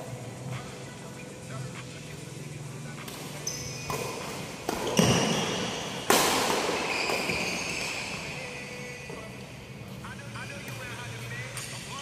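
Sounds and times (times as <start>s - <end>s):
sneaker squeaks: 3.0s - 9.6s
racket hitting shuttlecock: 3.1s - 8.1s.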